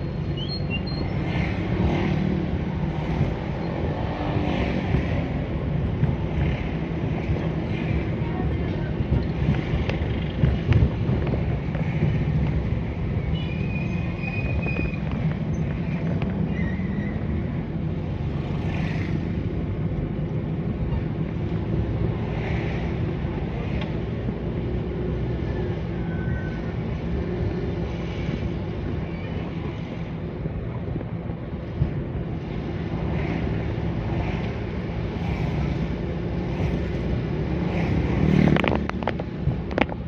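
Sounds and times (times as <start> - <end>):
van engine and road noise: 0.0 - 40.0.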